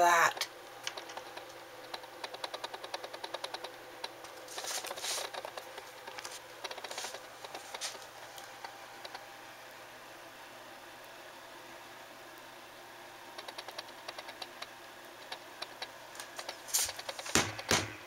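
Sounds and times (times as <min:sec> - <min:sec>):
animal scratching inside a wall: 0:04.5 - 0:08.1.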